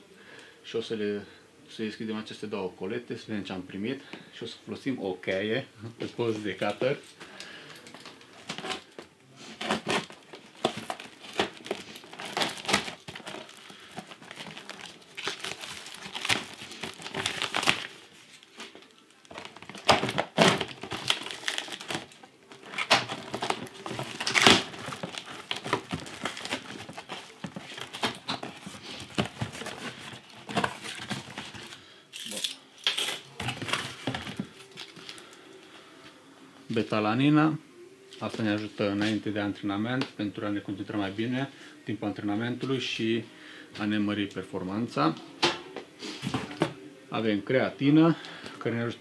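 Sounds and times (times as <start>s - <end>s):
tape and plastic ripping: 9.6s - 34.1s.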